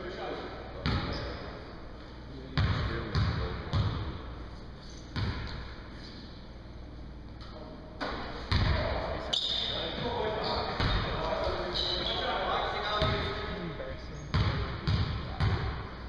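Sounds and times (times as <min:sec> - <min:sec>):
basketball bouncing on wooden floor: 0:02.6 - 0:04.0, 0:05.2 - 0:05.6, 0:14.3 - 0:15.8.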